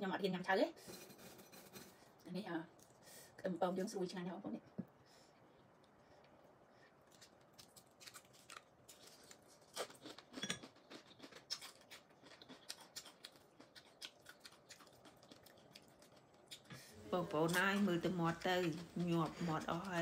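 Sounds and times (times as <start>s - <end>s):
chewing clicks and lip smacks: 10.0s - 16.7s.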